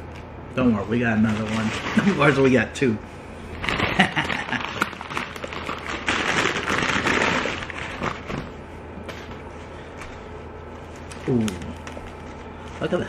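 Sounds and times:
foil wrapper crinkling: 0:01.0 - 0:02.6, 0:03.6 - 0:09.4.

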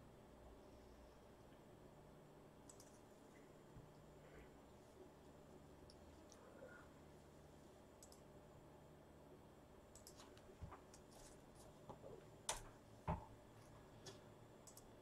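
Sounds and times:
small clicks and taps at a desk: 0:02.6 - 0:03.0, 0:09.9 - 0:14.9.

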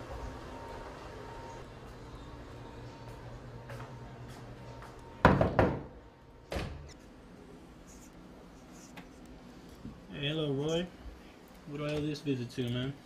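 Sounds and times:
wooden door banging: 0:05.2 - 0:05.9.

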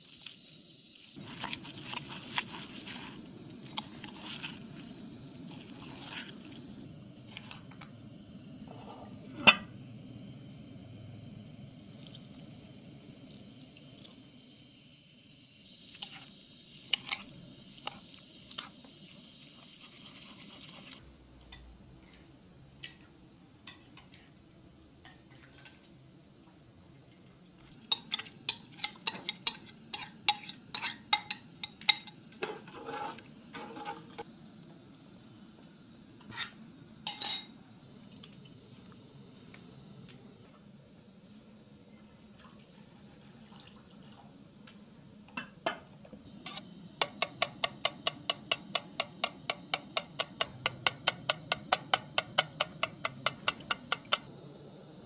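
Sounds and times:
steady high hiss: 0:00.0 - 0:55.0
metal spoon clinking against pot: 0:27.9 - 0:32.2.

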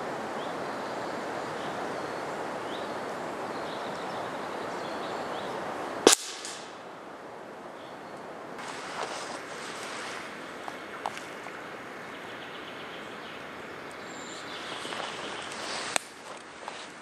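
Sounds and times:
outdoor background hiss: 0:00.0 - 0:17.0
sharp crack: 0:06.0 - 0:06.9, 0:15.5 - 0:16.5
faint clicks: 0:10.6 - 0:11.6, 0:14.8 - 0:16.9.

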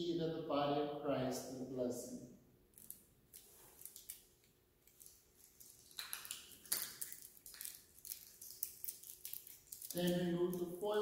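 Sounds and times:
plastic and foil seals peeling: 0:02.8 - 0:11.0.

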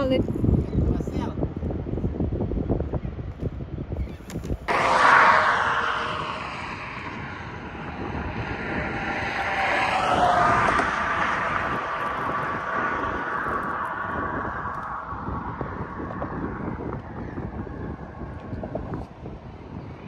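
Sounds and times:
motor passing by: 0:04.7 - 0:19.2.

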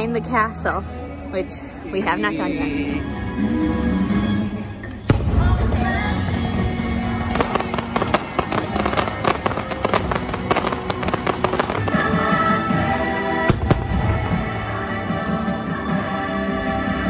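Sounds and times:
music playing: 0:00.0 - 0:17.0
fireworks launching and popping: 0:05.1 - 0:12.2.

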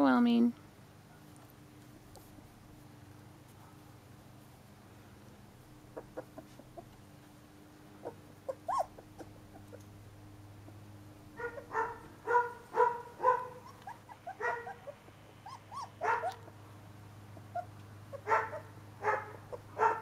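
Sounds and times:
puppy whimpering: 0:05.9 - 0:07.0, 0:08.0 - 0:10.0, 0:13.4 - 0:16.5, 0:17.4 - 0:18.7
puppy yipping: 0:05.9 - 0:07.0, 0:08.0 - 0:09.9, 0:10.6 - 0:16.6, 0:17.4 - 0:20.0.

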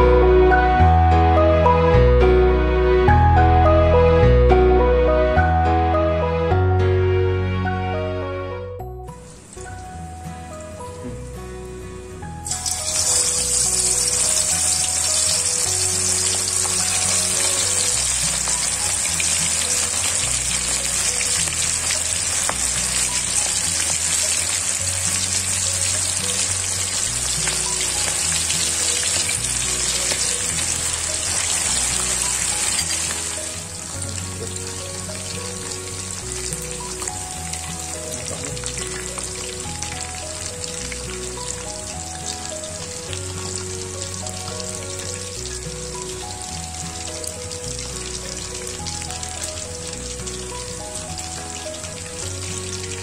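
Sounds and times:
chicken deep-frying in oil: 0:09.2 - 0:11.3, 0:12.2 - 0:53.0.

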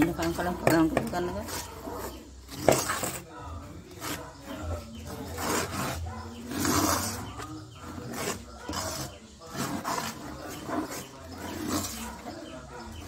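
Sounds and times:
metal spoon scraping bowl: 0:00.0 - 0:13.0.

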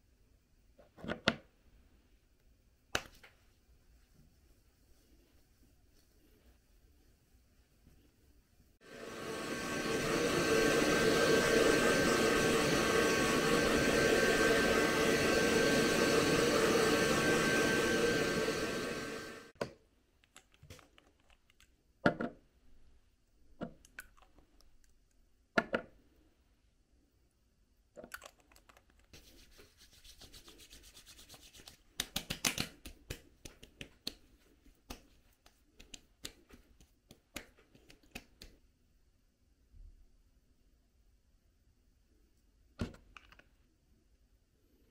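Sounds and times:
hands rubbing skin: 0:03.0 - 0:08.3, 0:29.0 - 0:38.6
hair dryer blowing: 0:08.8 - 0:19.6.

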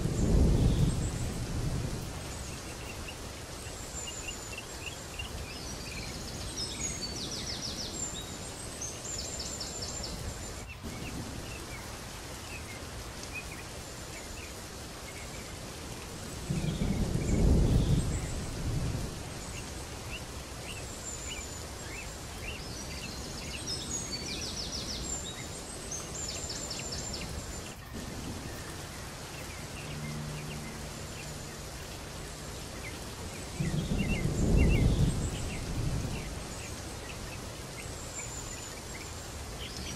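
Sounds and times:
low rolls of thunder: 0:00.0 - 0:02.6, 0:16.4 - 0:19.7, 0:33.5 - 0:37.3
birds chirping and trilling: 0:00.0 - 0:39.9
steady rain: 0:00.0 - 0:39.9.

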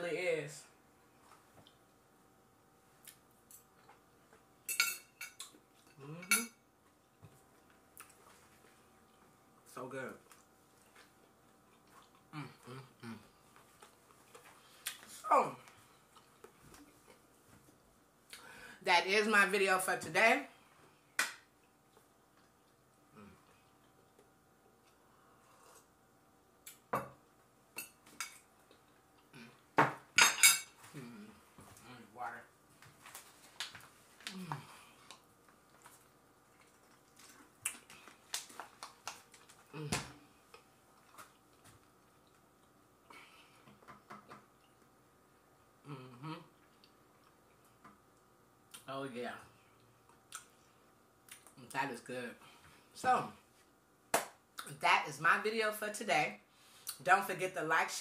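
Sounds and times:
person humming: 0:06.0 - 0:06.3, 0:12.3 - 0:13.4, 0:45.8 - 0:46.5.

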